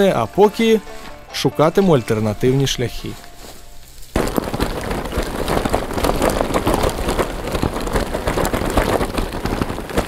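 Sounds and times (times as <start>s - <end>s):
bicycle rattling over cobblestones: 3.9s - 10.0s.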